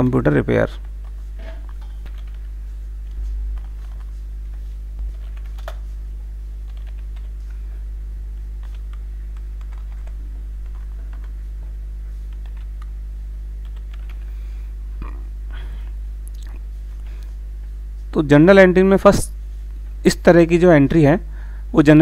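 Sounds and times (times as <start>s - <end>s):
low electrical hum: 0.0s - 22.0s
keyboard typing: 0.8s - 4.2s, 5.0s - 5.9s, 6.6s - 7.4s, 8.6s - 11.4s, 12.3s - 12.9s, 13.6s - 14.3s.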